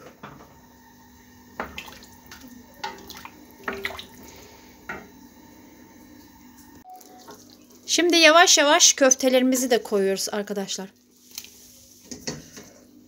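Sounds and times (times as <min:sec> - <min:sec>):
water sloshing in pot: 0:01.5 - 0:05.1.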